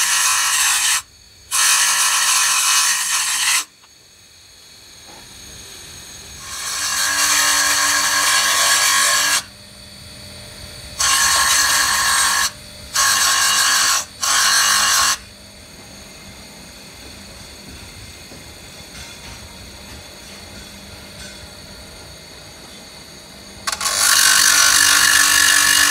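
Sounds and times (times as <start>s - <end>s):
grinder grinding metal gear: 0.0s - 3.7s, 6.4s - 9.5s, 11.0s - 15.2s, 23.6s - 25.9s
grinder motor humming and whining: 0.0s - 25.9s.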